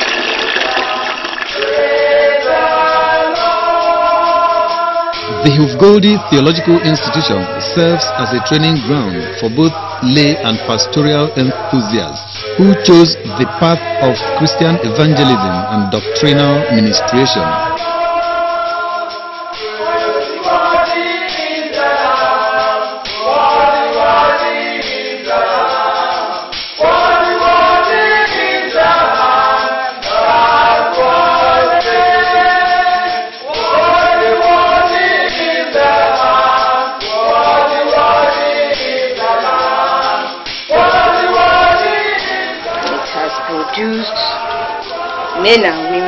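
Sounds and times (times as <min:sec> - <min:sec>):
choir singing in harmony: 0:00.0 - 0:46.0.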